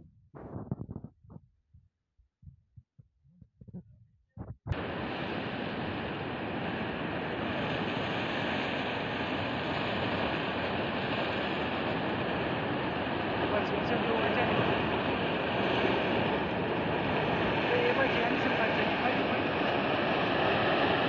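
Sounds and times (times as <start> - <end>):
faint low bumps: 2.4 - 4.8.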